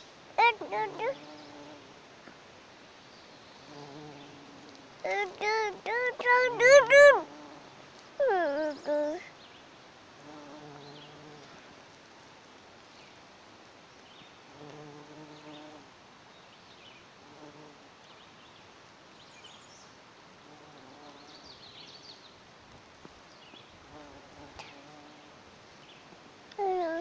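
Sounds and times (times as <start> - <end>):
bumblebee buzzing: 0.4 - 1.9, 3.6 - 9.2, 10.2 - 11.6, 14.5 - 15.9, 17.2 - 17.8, 23.8 - 25.5.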